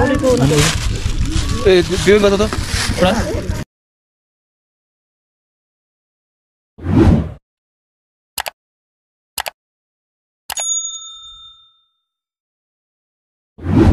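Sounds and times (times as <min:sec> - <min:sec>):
bright bell ding: 0:10.5 - 0:12.2.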